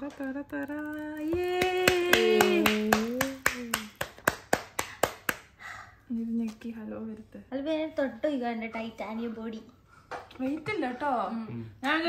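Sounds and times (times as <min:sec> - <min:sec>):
rhythmic hand claps: 0:00.0 - 0:05.6.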